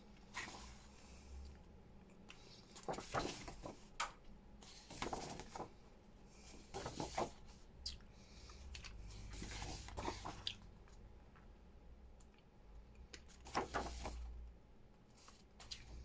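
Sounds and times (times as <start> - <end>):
paper pages rustling: 2.4 - 3.8, 4.7 - 5.7, 6.5 - 7.4, 8.8 - 10.4, 13.3 - 14.3.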